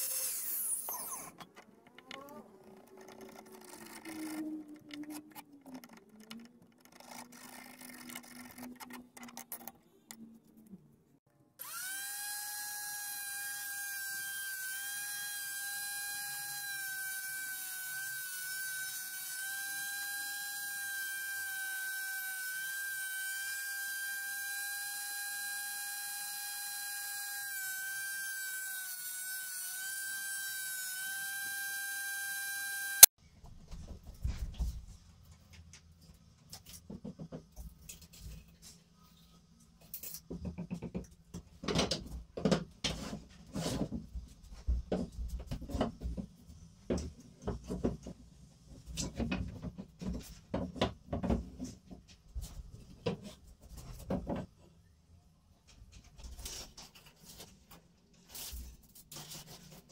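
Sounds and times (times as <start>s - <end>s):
jointer motor whining: 0.0s - 9.7s, 11.6s - 33.1s.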